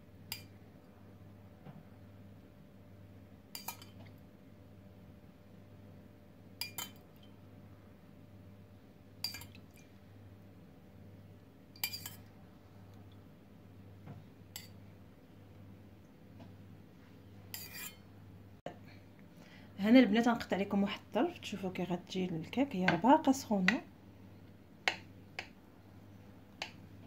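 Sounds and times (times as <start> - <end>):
metal spoon clinking on pot: 3.5 - 4.0, 6.6 - 7.3, 9.2 - 9.6, 11.8 - 12.3.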